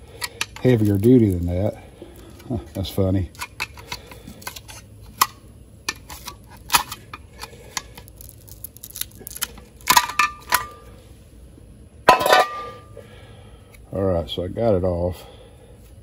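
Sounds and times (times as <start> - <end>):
metal clicks and scrapes: 0.2 - 1.5.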